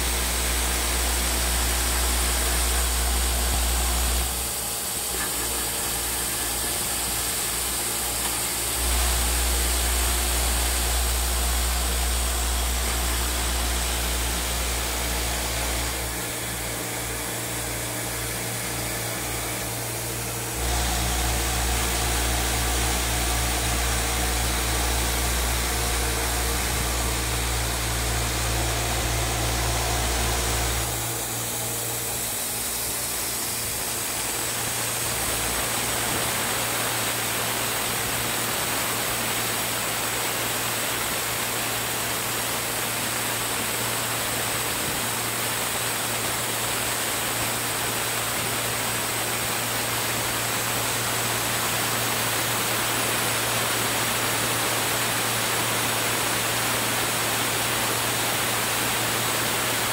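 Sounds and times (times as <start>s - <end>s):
machine mechanical hum: 0.0s - 59.9s.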